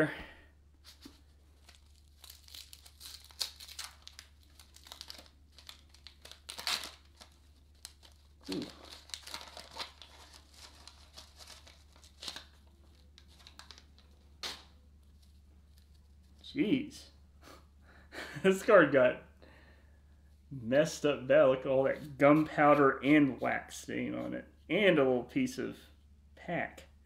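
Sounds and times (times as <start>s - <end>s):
paper wrapper crinkling and tearing: 0.8s - 16.4s.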